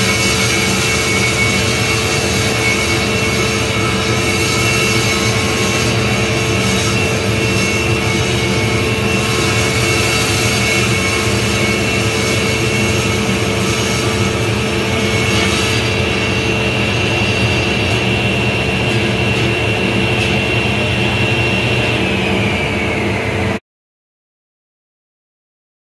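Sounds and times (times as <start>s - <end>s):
table saw ripping board: 0.0s - 16.4s.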